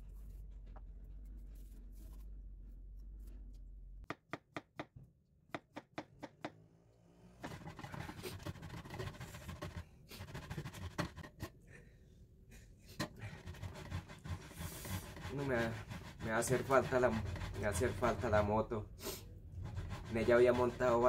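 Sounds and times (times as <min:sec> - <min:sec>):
knife chopping on plastic board: 0:04.0 - 0:06.6
cheese grater scraping: 0:13.2 - 0:18.5, 0:19.6 - 0:21.0.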